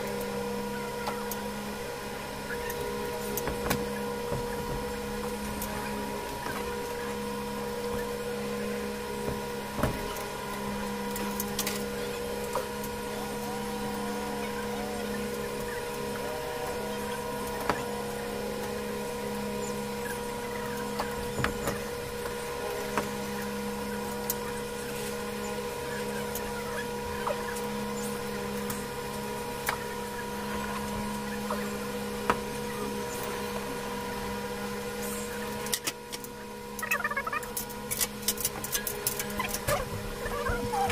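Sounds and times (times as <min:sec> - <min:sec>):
steady mechanical hum: 0:00.0 - 0:40.9.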